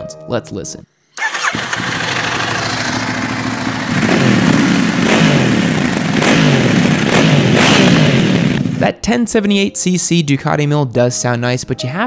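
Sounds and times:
motorcycle engine revving: 0:01.2 - 0:08.8.

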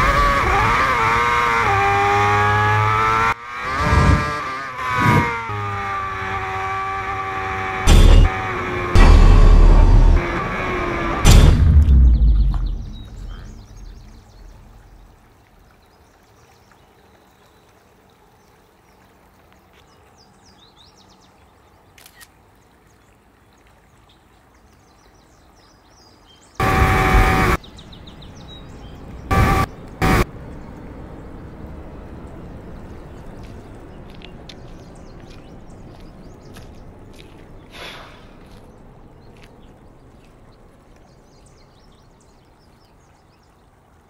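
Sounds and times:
deep boom: 0:07.9 - 0:08.3, 0:09.0 - 0:10.4, 0:11.2 - 0:14.8
birds chirping: 0:11.2 - 0:17.8, 0:24.1 - 0:44.0
pitched horn blasts: 0:26.6 - 0:27.6, 0:29.3 - 0:30.3.

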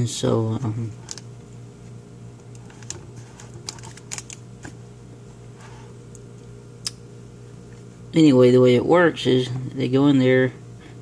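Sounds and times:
steady low hum: 0:00.0 - 0:11.0
plastic film crinkling: 0:02.4 - 0:04.8.

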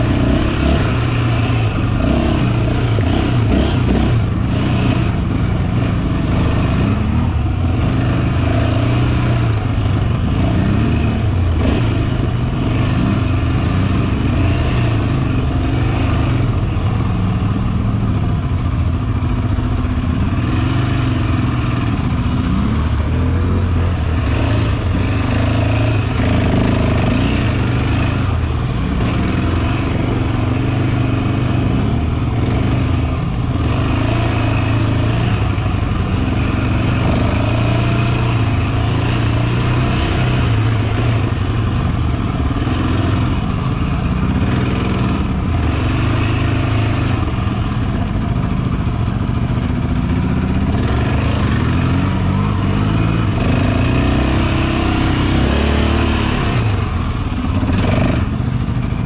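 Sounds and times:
four-stroke engine revving: 0:00.0 - 0:59.0.

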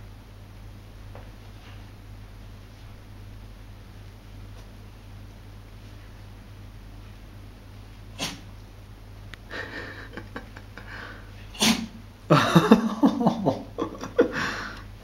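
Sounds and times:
dog sneezing: 0:08.1 - 0:08.5, 0:11.5 - 0:12.0.

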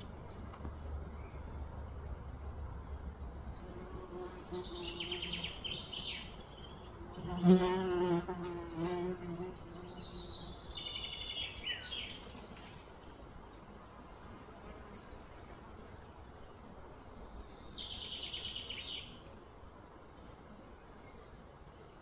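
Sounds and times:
buzzing trills and chirps: 0:03.2 - 0:13.1.

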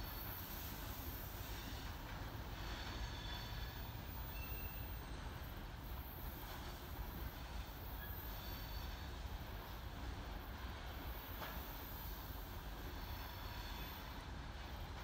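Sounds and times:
train wheels rumbling on rail: 0:00.0 - 0:15.0
high wheel squeals: 0:02.6 - 0:05.1, 0:08.0 - 0:09.1.

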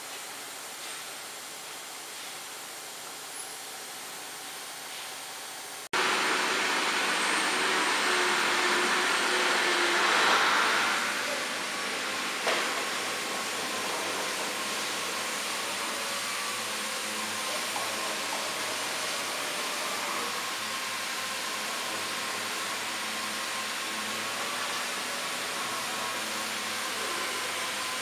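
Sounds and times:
wood router rushing noise: 0:05.9 - 0:28.0.

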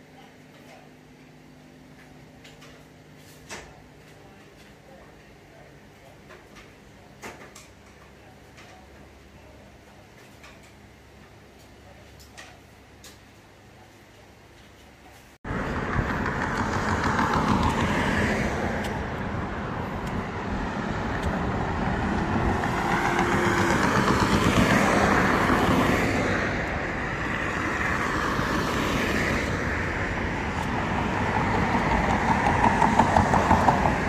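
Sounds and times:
cars passing: 0:15.4 - 0:34.0.

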